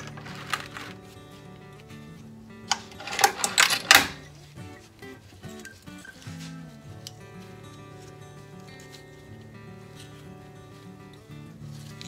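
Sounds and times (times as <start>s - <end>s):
metallic clatter: 0.0s - 1.0s, 2.7s - 4.3s
background music: 0.0s - 12.0s.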